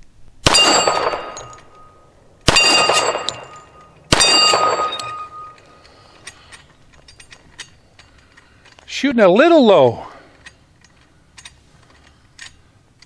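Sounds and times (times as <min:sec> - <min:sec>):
pistol shots: 0:00.4 - 0:01.8, 0:02.4 - 0:05.4
steel target plate clanging: 0:00.5 - 0:06.4.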